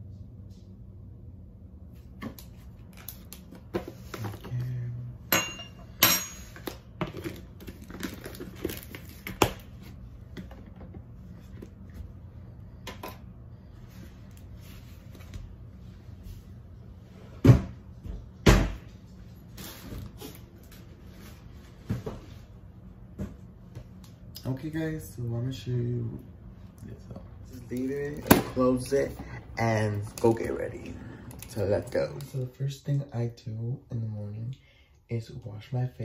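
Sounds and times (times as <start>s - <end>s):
cups and utensils clinking: 5.3s - 7.3s.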